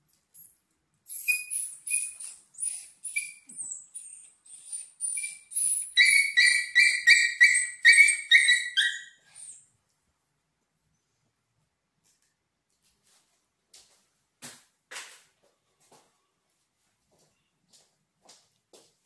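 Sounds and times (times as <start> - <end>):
puppy yelping and crying: 1.1 - 9.6.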